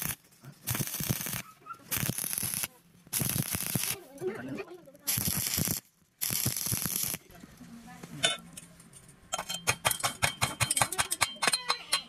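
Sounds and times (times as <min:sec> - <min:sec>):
welding arc crackling: 0:00.0 - 0:04.2, 0:04.8 - 0:07.4
metal tool clinking on weld: 0:09.3 - 0:12.0.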